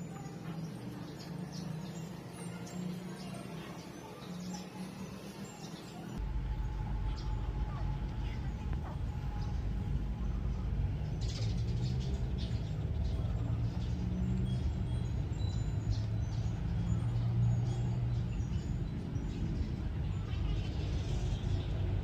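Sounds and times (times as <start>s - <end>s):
low engine hum: 6.1s - 22.0s.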